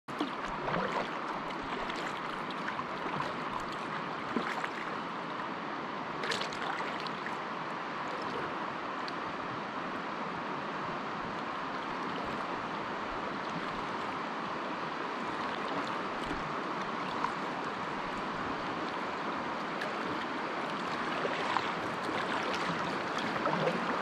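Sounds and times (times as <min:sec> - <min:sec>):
river water flowing: 0:00.1 - 0:24.0.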